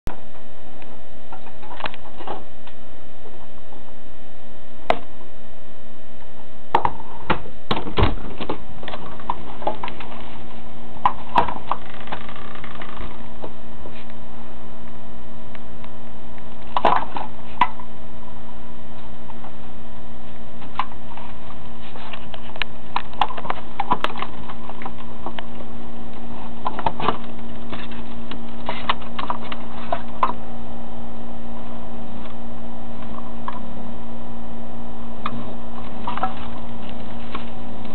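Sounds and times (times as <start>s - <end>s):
steady electrical hum: 0.0s - 37.9s
raccoons rummaging in garbage bin: 1.3s - 2.8s, 6.8s - 14.2s, 20.3s - 30.5s, 35.2s - 37.9s.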